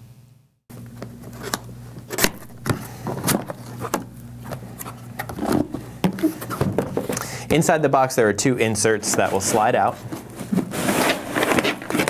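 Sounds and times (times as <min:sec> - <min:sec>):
steady low hum: 0:00.0 - 0:12.0
cardboard box scraping and rustling: 0:09.0 - 0:12.0.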